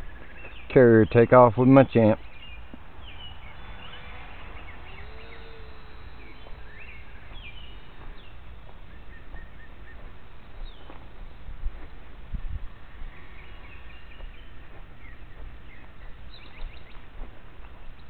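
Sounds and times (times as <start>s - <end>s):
constant low rumble: 0.0s - 18.0s
faint steady hum: 0.0s - 18.0s
songbirds chirping: 0.0s - 18.0s.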